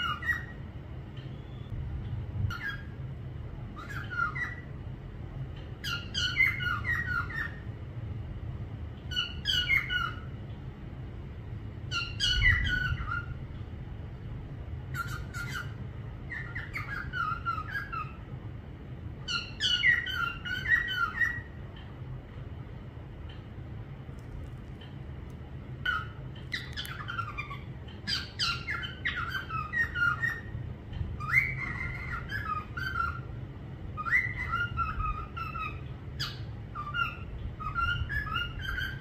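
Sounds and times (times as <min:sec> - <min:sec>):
parrot squawky chirps: 0:00.0 - 0:00.6, 0:03.8 - 0:04.7, 0:05.8 - 0:07.6, 0:09.1 - 0:10.3, 0:11.9 - 0:13.4, 0:14.9 - 0:18.2, 0:19.3 - 0:21.6, 0:25.8 - 0:30.5, 0:31.2 - 0:33.3, 0:34.0 - 0:39.0
steady low hum: 0:00.0 - 0:39.0.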